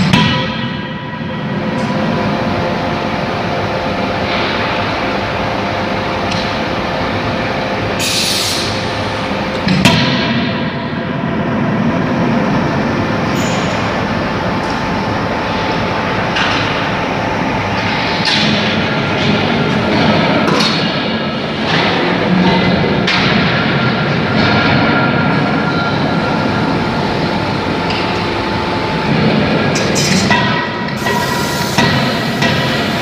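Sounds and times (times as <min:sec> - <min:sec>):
machine hum: 0:00.0 - 0:33.0
hiss burst: 0:31.0 - 0:33.0.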